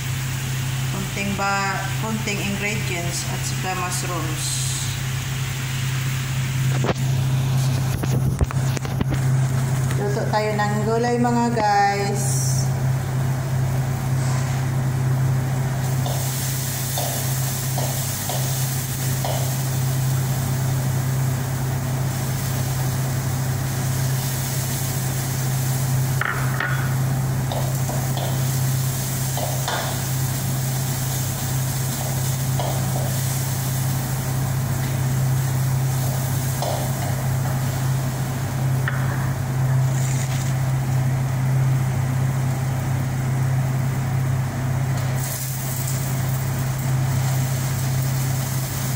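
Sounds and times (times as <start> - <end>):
low hum with hiss: 0.0 - 48.9.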